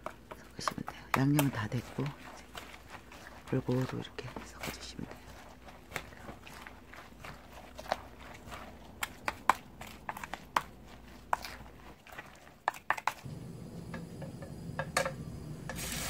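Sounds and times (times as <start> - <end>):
spoon stirring wet batter: 0.0 - 16.0
low hum: 13.2 - 16.0.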